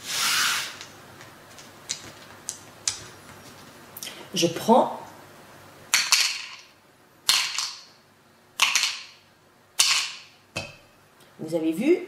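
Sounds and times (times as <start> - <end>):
plastic counters clacking into cup: 6.0 - 6.7, 7.3 - 7.9, 8.6 - 9.2.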